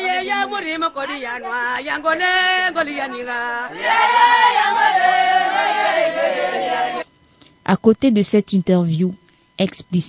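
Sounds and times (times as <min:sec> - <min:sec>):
chorus of voices chanting: 0:00.0 - 0:07.0.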